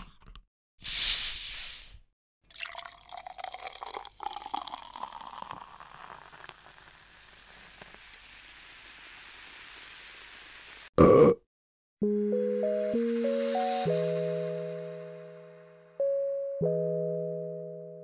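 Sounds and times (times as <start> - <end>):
crackling hissing effects: 0.8 - 2.1, 5.6 - 10.9.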